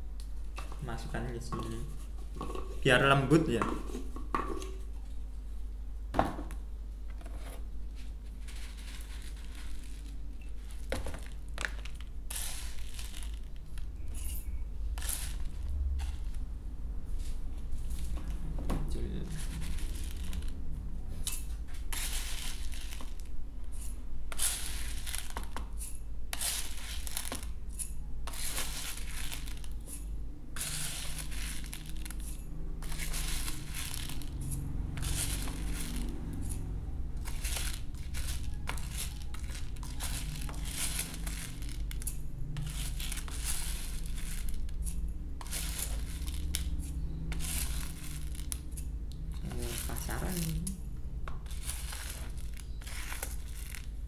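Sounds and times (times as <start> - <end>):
low steady hum: 0.0 - 54.0
spoon scraping bird feed: 8.3 - 10.9, 11.7 - 16.3, 21.2 - 50.6, 51.3 - 54.0.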